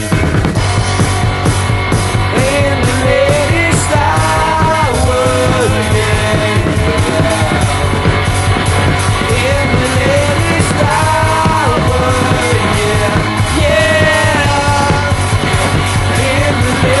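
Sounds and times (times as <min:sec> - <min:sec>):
rock song playing: 0:00.0 - 0:17.0.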